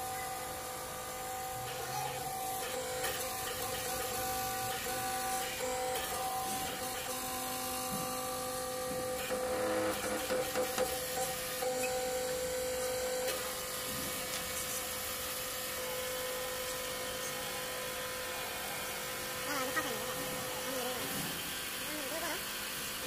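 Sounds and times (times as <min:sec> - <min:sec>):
hydraulic press motor whining: 0:00.0 - 0:23.0.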